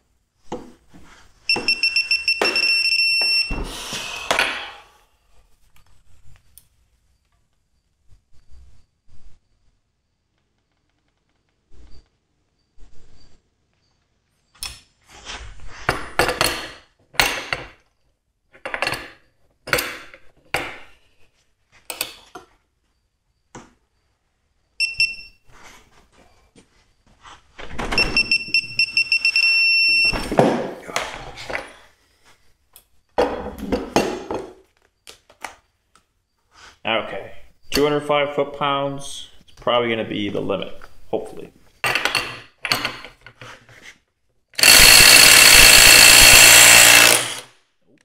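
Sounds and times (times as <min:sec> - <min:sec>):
torque wrench beeping: 0:01.5 - 0:03.6, 0:24.8 - 0:25.4, 0:28.0 - 0:30.3, 0:44.6 - 0:47.5
torque wrench ratcheting: 0:44.6 - 0:47.5.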